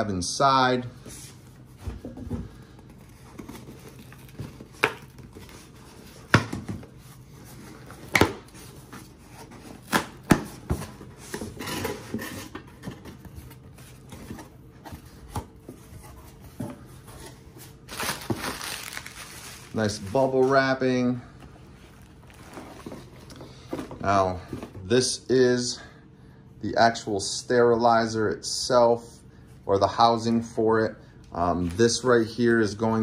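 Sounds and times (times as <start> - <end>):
cardboard scraping and rustling: 2.9 - 20.9, 21.6 - 24.8
bubble wrap crinkling: 3.0 - 6.3, 17.7 - 20.8, 21.6 - 23.3.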